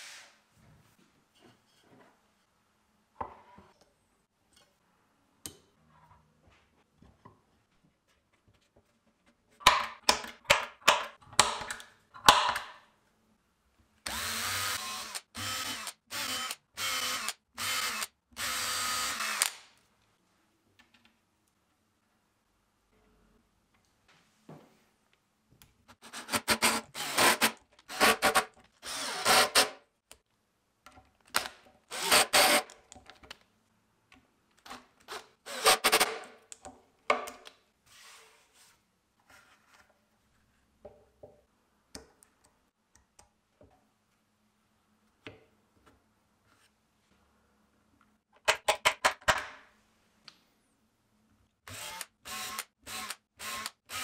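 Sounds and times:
drill boring into wood: 14.1 - 19.6, 26.6 - 29.7, 31.9 - 32.6, 35.5 - 36.0, 51.7 - 54.0
power driver driving screws: 26.3 - 29.8, 31.4 - 32.7, 51.7 - 54.0.

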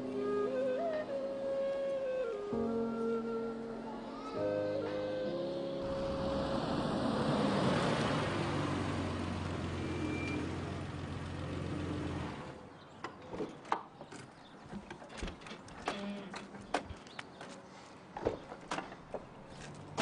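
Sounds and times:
car engine low hum: 5.8 - 12.6.

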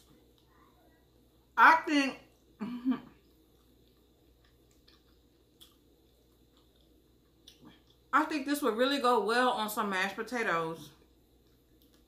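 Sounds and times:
chewing and mouth sounds: 2.3 - 8.1, 11.0 - 12.0.

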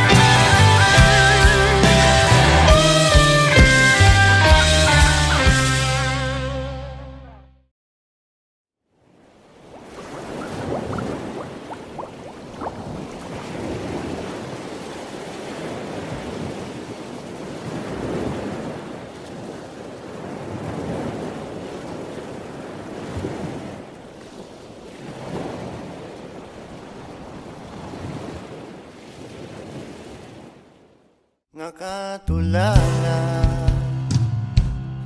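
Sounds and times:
ocean surf washing: 9.1 - 30.9.

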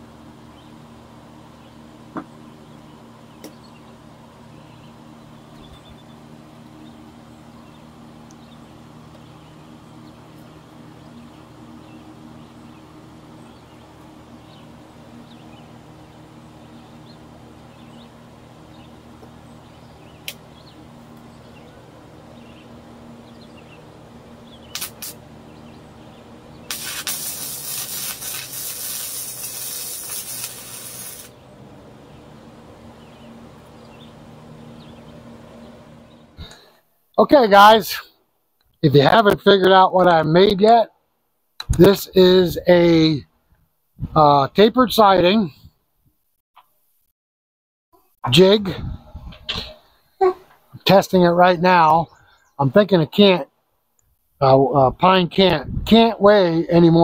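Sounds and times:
steady low hum: 0.0 - 45.8, 48.2 - 57.0
arc welding crackling hiss: 24.7 - 25.2, 26.7 - 31.4.

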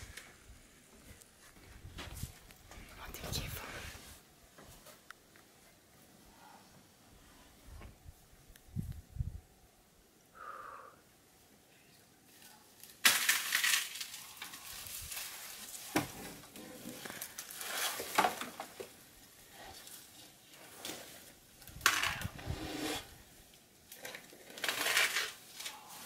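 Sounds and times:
leaves rustling and crackling: 12.2 - 26.0.

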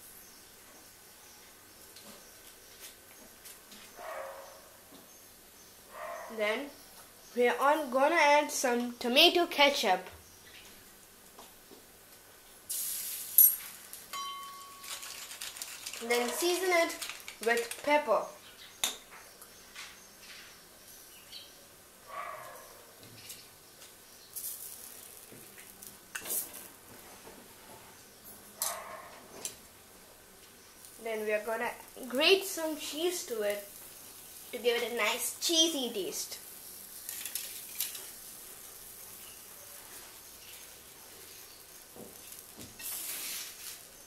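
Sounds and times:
flatbread sizzling on a hot pan: 10.8 - 18.4, 22.0 - 44.0
steel spoon clinking on pan: 13.4 - 15.1.

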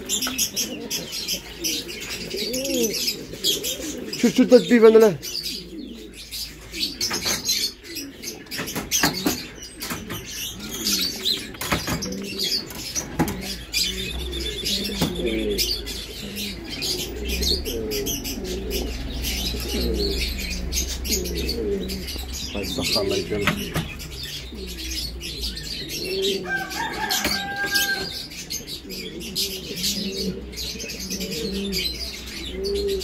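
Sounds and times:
pigeons cooing: 0.0 - 33.0
high bird chirps: 6.2 - 29.6.

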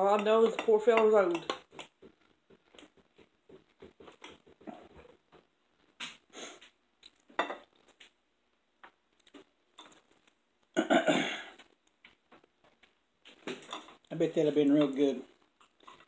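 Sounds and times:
sniffs: 6.3 - 6.8
chewing: 9.1 - 10.8, 15.3 - 16.0
cutlery scraping on plates: 13.5 - 14.0.

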